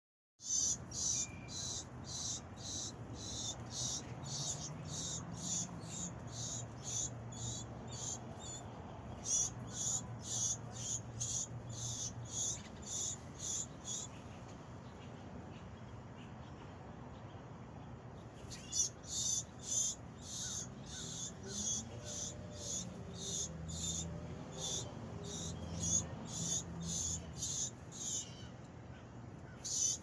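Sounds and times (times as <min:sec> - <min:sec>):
insect chirping: 0:00.4 - 0:08.6.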